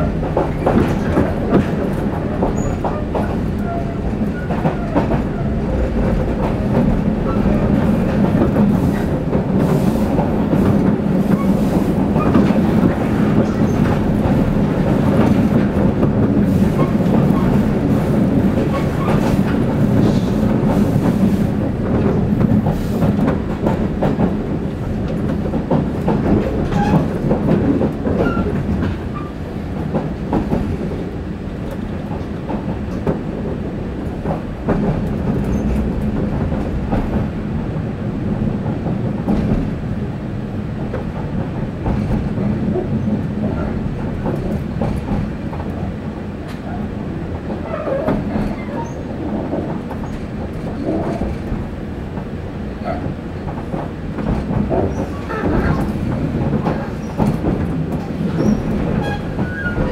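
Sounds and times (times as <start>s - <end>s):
clickety-clack of rail joints: 0.0s - 59.9s
train wheels rumbling on rail: 0.0s - 59.9s.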